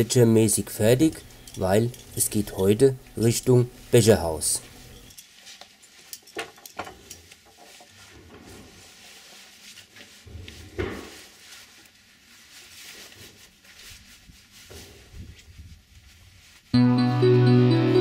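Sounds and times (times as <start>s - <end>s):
webbing rustling: 0.2s - 16.8s
buckles and hardware clicking: 1.2s - 2.5s, 6.1s - 7.3s.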